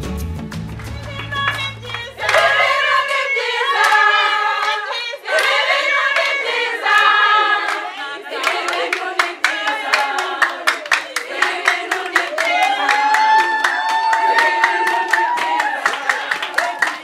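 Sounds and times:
hand clapping: 0:00.2 - 0:03.1, 0:03.8 - 0:17.0
women singing in unison: 0:01.2 - 0:17.0.

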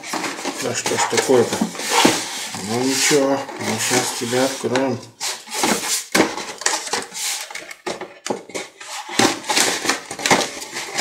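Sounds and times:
cardboard lid scraping box: 0:00.0 - 0:07.8.

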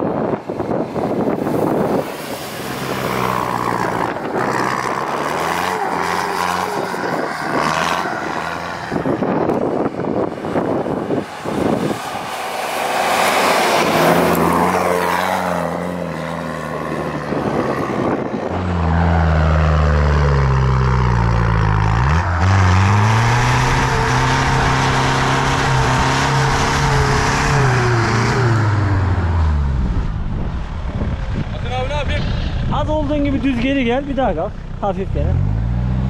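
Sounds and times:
car engine revving hard: 0:01.7 - 0:09.9, 0:16.9 - 0:30.0.

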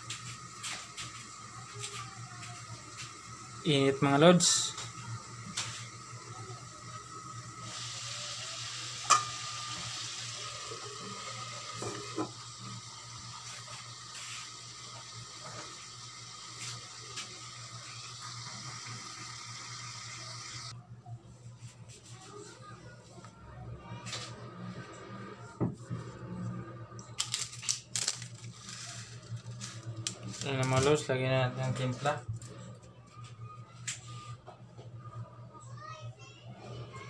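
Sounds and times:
chicken wings sizzling in oil: 0:00.0 - 0:20.7.

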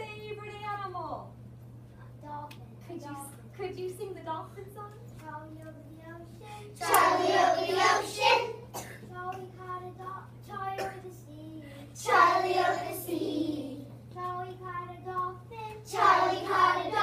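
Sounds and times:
young children singing together: 0:06.8 - 0:09.6, 0:12.0 - 0:17.0.

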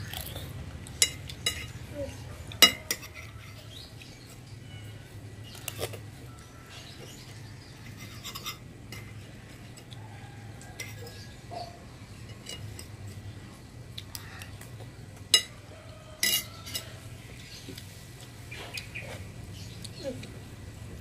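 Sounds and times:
cutlery clatter: 0:02.6 - 0:03.6, 0:07.8 - 0:09.9, 0:12.2 - 0:13.0, 0:16.2 - 0:17.0
cutlery clinking on glass bowl: 0:02.6 - 0:03.6, 0:16.2 - 0:17.0.

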